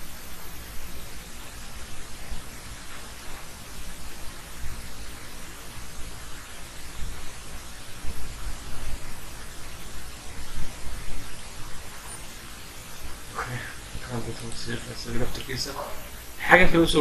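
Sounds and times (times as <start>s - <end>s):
microphone hiss: 0.0s - 17.0s.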